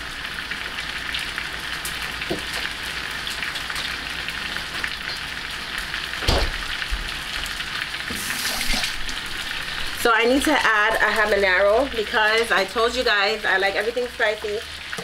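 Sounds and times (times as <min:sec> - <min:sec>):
steak sizzling in a hot pan: 0:00.0 - 0:15.0
dull knock: 0:06.2 - 0:06.6.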